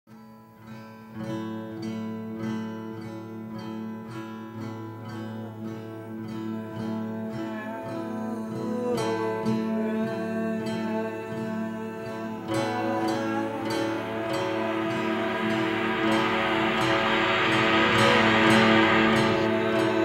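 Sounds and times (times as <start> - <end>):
acoustic guitar strumming: 0.1 - 20.0
wavering melody line: 13.3 - 20.0.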